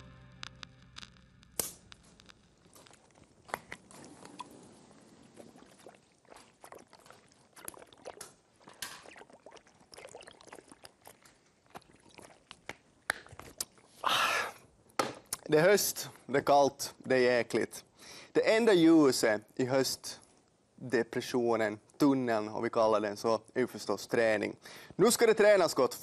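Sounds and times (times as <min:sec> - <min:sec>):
gulps and slurps: 0:03.8 - 0:14.1.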